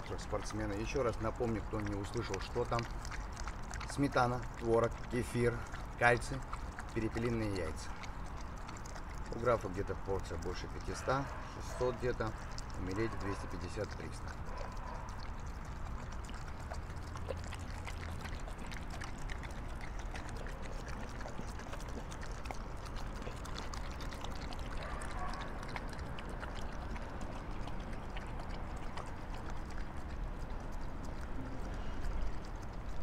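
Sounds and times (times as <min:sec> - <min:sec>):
dogs lapping and slurping: 0:00.0 - 0:33.0.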